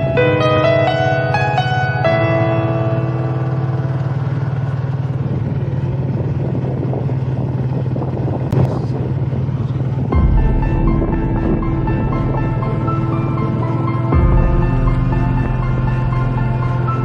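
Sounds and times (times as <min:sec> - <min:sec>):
music: 0:00.0 - 0:04.3, 0:10.1 - 0:17.0
vehicle engine running: 0:00.0 - 0:17.0.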